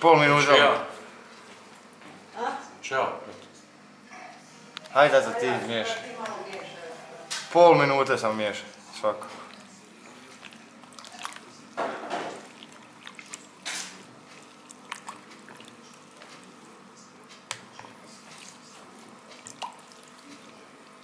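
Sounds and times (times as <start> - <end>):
spoon stirring liquid in bowl: 8.7 - 21.0
wet sloshing and dripping: 9.1 - 16.5, 18.2 - 20.6.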